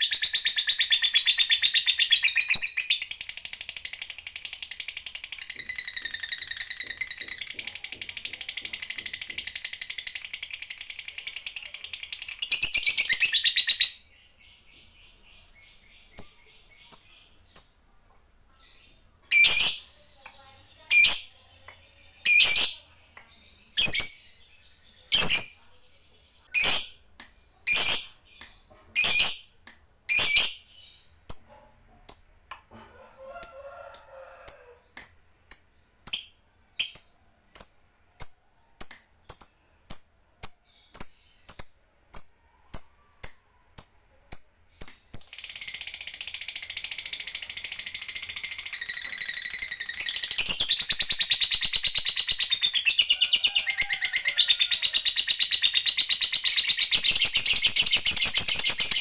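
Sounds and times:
lovebird chattering trill: 0.0 - 14.0.

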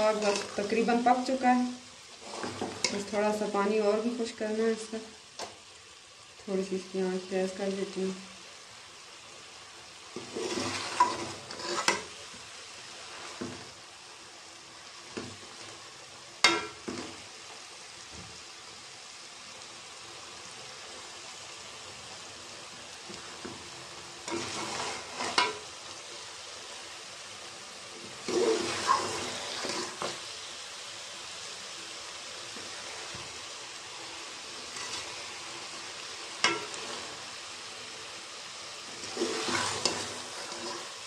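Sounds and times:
curry sizzling: 0.0 - 41.0
spoon scraping in a pot: 0.1 - 0.7, 2.2 - 3.1, 10.2 - 12.1, 24.3 - 25.6, 28.2 - 30.1, 34.7 - 35.1, 39.0 - 41.0.

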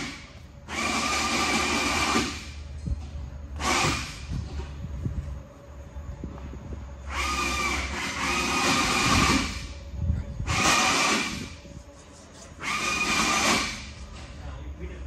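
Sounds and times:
power tool whining: 0.0 - 2.6, 3.6 - 4.6, 7.0 - 9.8, 10.4 - 11.6, 12.6 - 14.0.

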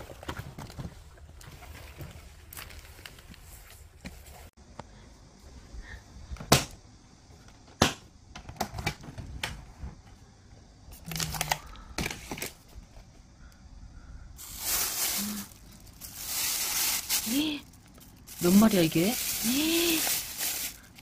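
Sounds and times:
plastic bags rustling: 0.0 - 4.3, 14.4 - 21.0.

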